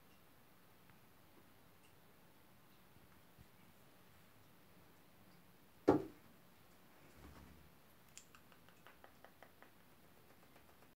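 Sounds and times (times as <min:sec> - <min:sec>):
sharp thump: 0:05.9 - 0:06.2
faint light clicks: 0:08.0 - 0:11.0.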